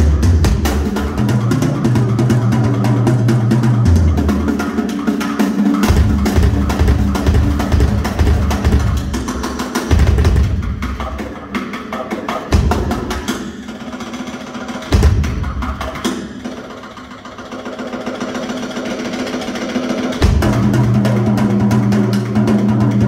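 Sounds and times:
drum solo: 0.0s - 23.0s
heavy low drum hits: 5.8s - 11.0s, 14.9s - 15.9s, 20.2s - 21.8s.

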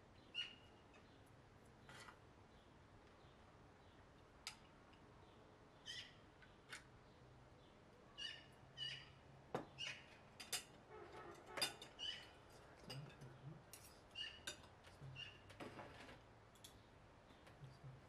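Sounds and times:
bird chirps: 8.2s - 10.1s, 14.1s - 14.5s.

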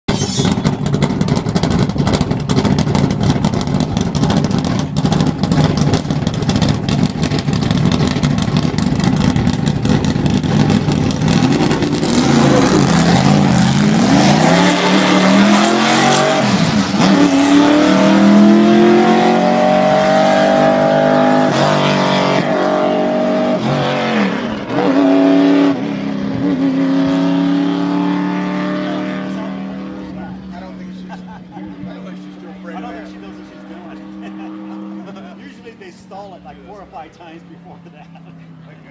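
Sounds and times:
car engine idling unevenly: 0.4s - 14.1s, 28.8s - 38.9s
car accelerating through gears: 0.4s - 38.9s.

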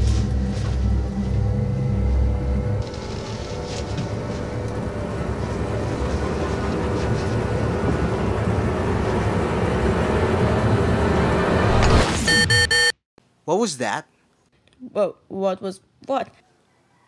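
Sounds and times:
rumbling drone: 0.0s - 12.0s.

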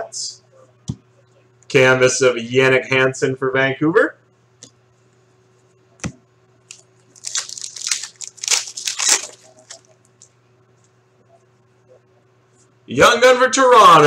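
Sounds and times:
foil wrapper crinkling: 6.7s - 10.3s.

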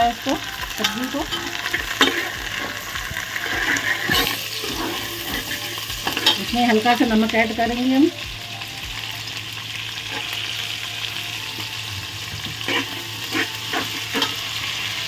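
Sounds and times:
vegetables sizzling in hot oil: 0.0s - 15.0s
metal spoon scraping a pot: 0.8s - 6.5s, 12.4s - 15.0s.

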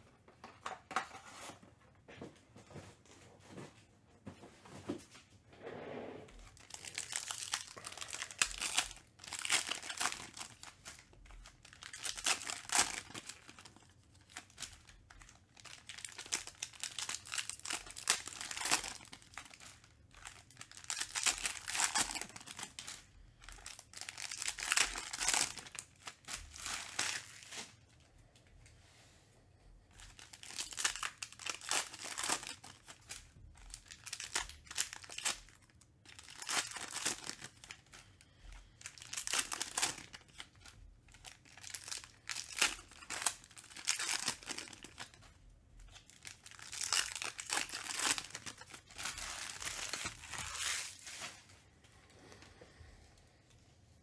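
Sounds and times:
foil packs crinkling: 6.4s - 27.8s, 30.0s - 51.6s.

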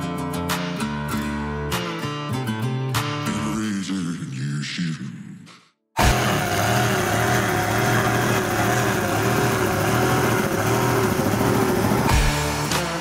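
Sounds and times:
powerboat engine running hard: 6.0s - 12.8s.

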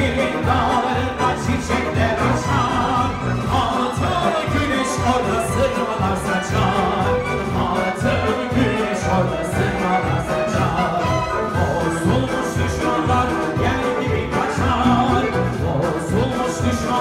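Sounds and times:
crowd singing along: 0.0s - 17.0s
music with a steady beat: 0.0s - 17.0s
person singing into a microphone: 0.0s - 17.0s.

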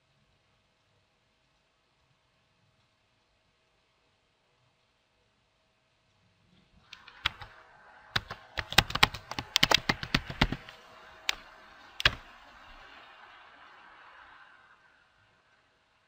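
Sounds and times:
keyboard typing: 6.9s - 12.9s.

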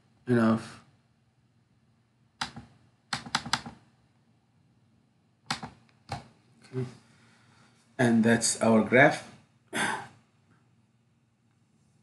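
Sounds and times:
computer mouse clicking: 2.4s - 3.8s, 5.5s - 6.3s.

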